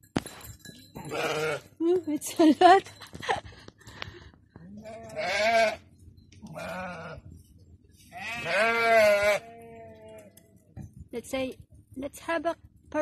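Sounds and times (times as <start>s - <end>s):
sheep bleating: 1.0s - 1.7s, 4.7s - 5.9s, 6.5s - 7.2s, 8.1s - 10.3s.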